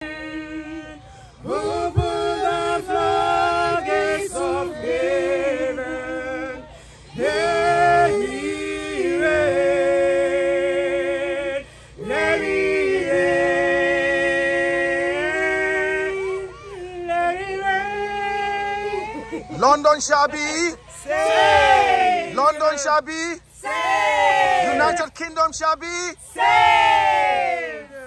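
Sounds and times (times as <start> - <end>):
women singing unaccompanied: 0.0 - 19.6.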